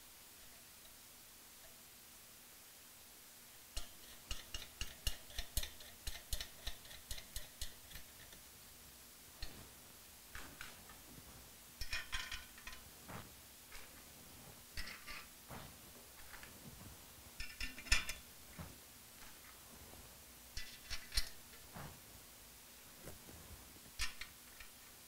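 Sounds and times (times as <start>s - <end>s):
metal nuts and washers clinking: 11.8s - 12.9s, 14.8s - 15.3s, 17.4s - 18.3s, 20.6s - 21.7s, 24.0s - 24.8s.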